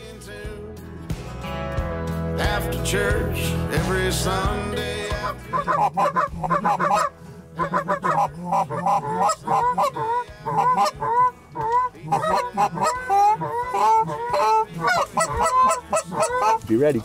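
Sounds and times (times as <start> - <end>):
geese honking: 5.0 - 17.0.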